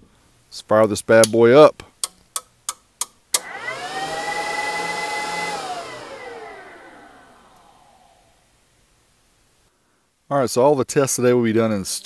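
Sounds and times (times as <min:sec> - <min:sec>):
electric cooling fan whirring: 0:03.4 - 0:08.5.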